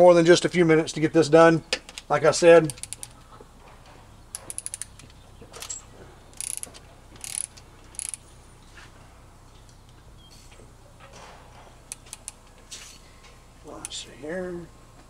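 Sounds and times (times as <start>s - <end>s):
hand ratchet clicking: 2.6s - 3.2s, 4.3s - 8.3s, 11.9s - 12.4s.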